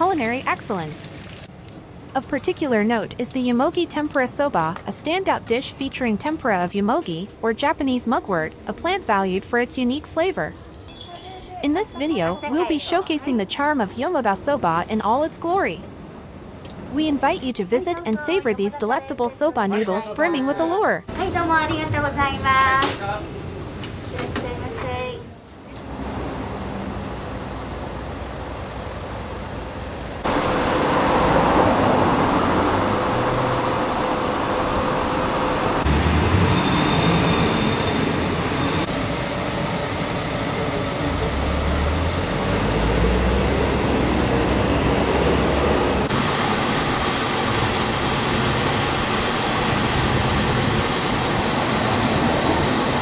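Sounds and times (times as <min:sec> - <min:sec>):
traffic noise: 0:21.1 - 0:48.5
passing vehicles rumbling: 0:25.8 - 0:39.0, 0:40.7 - 0:46.2.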